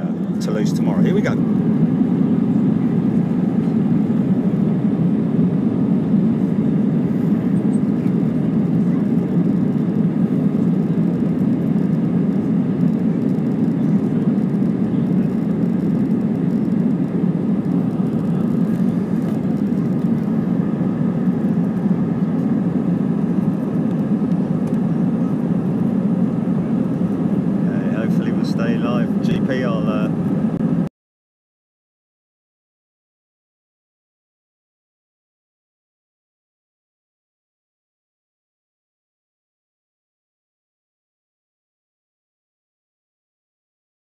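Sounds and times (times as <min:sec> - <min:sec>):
airliner cabin hum: 0:00.0 - 0:30.9.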